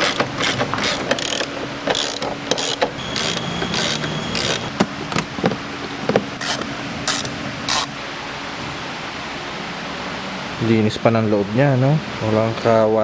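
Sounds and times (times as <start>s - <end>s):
socket ratchet wrench clicking: 0.0s - 4.6s
sharp clicks of fasteners: 0.0s - 5.3s.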